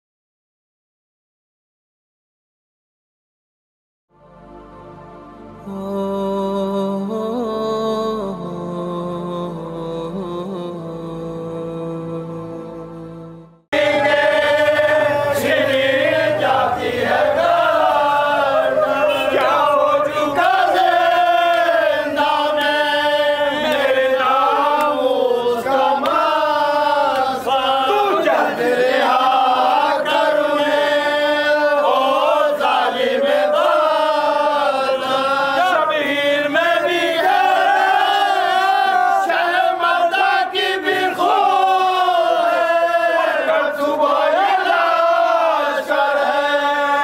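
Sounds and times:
man chanting an elegy: 0:27.4 - 0:28.6.

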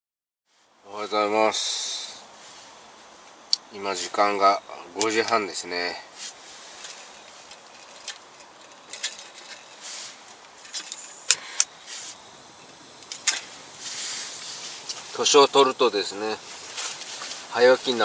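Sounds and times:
gas hissing: 0:01.4 - 0:18.0
gas burner igniting: 0:06.3 - 0:18.0
valve and lighter clicks: 0:10.9 - 0:13.8.

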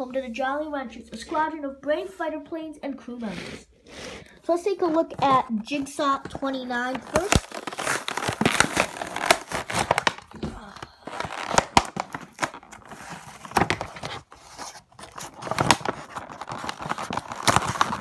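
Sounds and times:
plastic crinkling: 0:04.9 - 0:18.0
cardboard tearing: 0:06.7 - 0:18.0.

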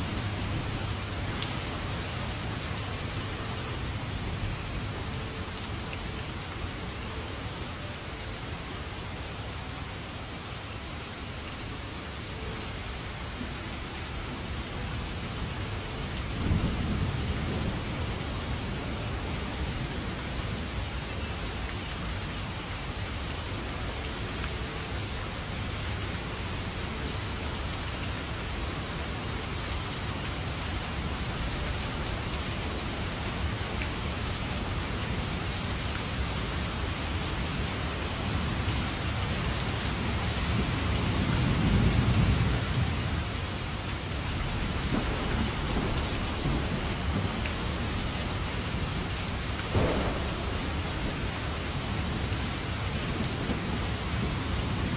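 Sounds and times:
heavy rain pouring: 0:00.0 - 0:54.9
low roll of thunder: 0:44.5 - 0:48.4, 0:49.4 - 0:54.9.

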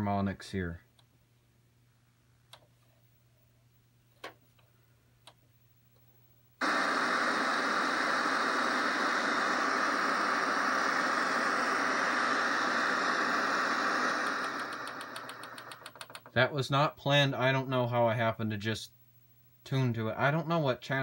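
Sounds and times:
television static hiss: 0:06.5 - 0:21.0.

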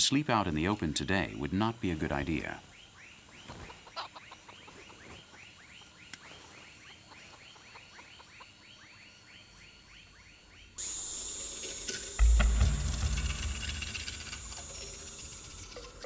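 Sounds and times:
steady hiss: 0:00.0 - 0:02.8, 0:10.8 - 0:16.0
low rumble: 0:12.2 - 0:16.0.

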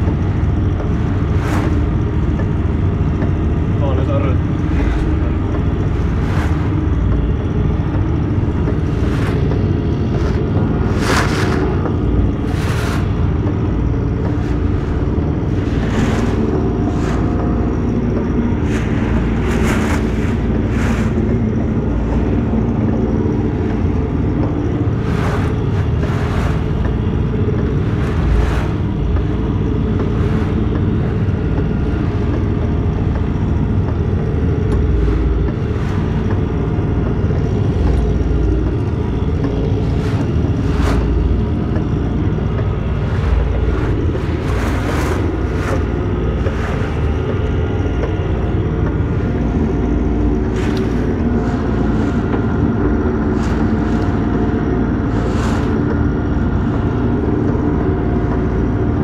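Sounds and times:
boat engine running: 0:00.0 - 0:59.0
water rushing past hull: 0:07.6 - 0:22.8, 0:23.4 - 0:33.1.

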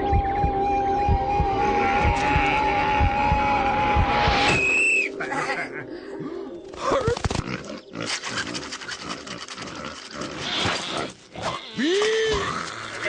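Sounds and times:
short high whistle-like tone: 0:04.5 - 0:05.1.

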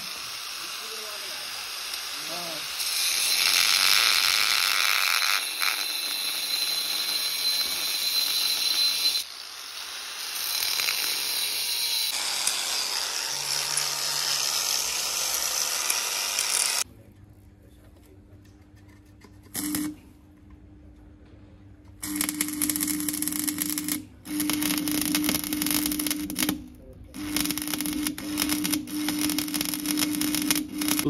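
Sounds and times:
metalworking tool hissing: 0:00.0 - 0:12.1.

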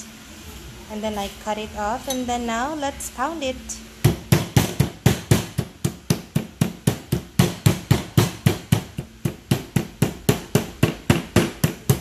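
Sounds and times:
meat mallet pounding meat: 0:04.0 - 0:12.0.

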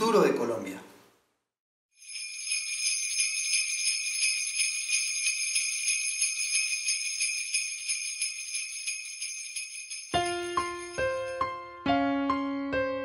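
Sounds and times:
sleigh bells shaken: 0:02.0 - 0:11.4.

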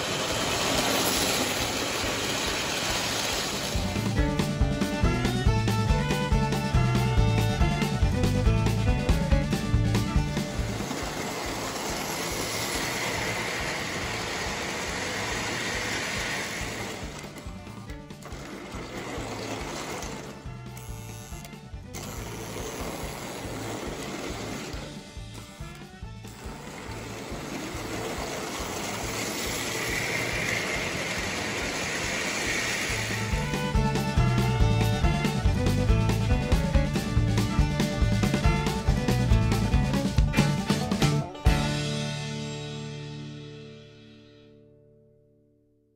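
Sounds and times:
model train wheels rumbling on rails: 0:00.0 - 0:40.6
music with a beat: 0:03.8 - 0:11.2, 0:32.9 - 0:42.8.

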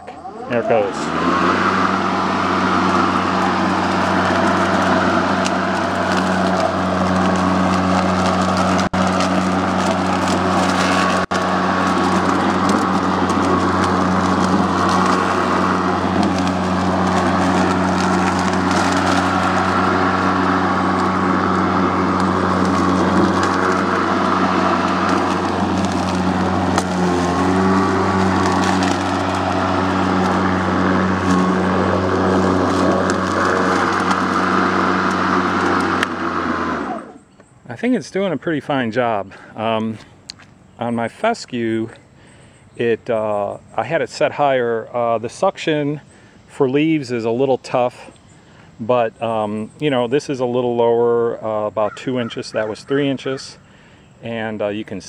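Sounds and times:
electric lawn mower running: 0:00.0 - 0:37.5.

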